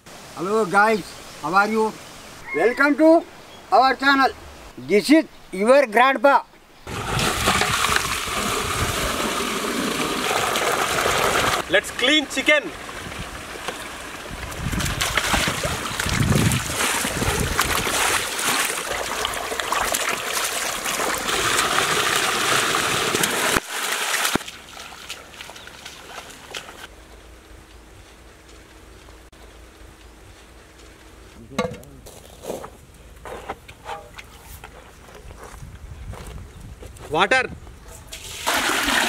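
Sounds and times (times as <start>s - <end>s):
water gushing into a metal pot: 6.9s - 11.7s, 12.7s - 24.4s, 38.1s - 39.0s.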